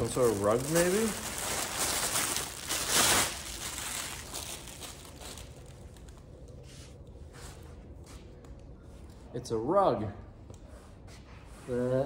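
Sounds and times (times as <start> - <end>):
packaging rustling and crinkling: 0.0 - 6.6.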